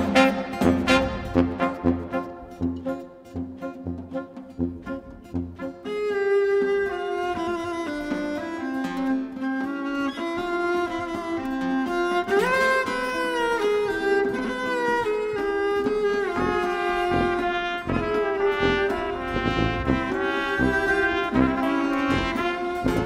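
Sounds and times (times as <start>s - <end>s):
bowed viola melody: 0.0s - 23.0s
low steady beat: 17.1s - 23.0s.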